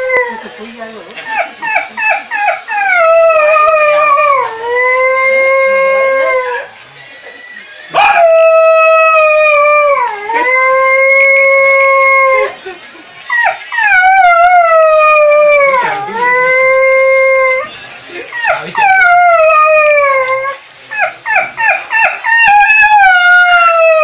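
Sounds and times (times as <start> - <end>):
man imitating dog howling: 2.8 - 6.7, 8.0 - 12.5, 13.8 - 17.7, 18.4 - 20.6, 22.4 - 24.0.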